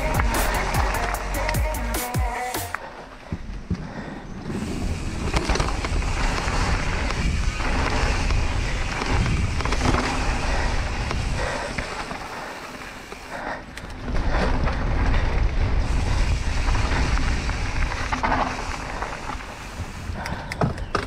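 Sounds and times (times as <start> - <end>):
tyres rolling on dirt: 2.9 - 21.0
wind rushing over microphone: 4.3 - 12.6, 13.9 - 21.0
bike chain and frame rattle: 4.5 - 21.0.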